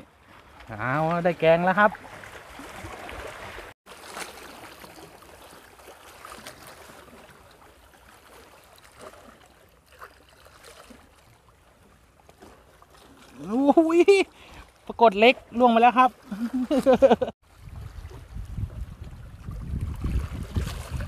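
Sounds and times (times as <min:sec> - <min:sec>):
waves lapping on rocky shore: 0:00.0 - 0:21.0
wind rumbling on microphone: 0:17.5 - 0:21.0.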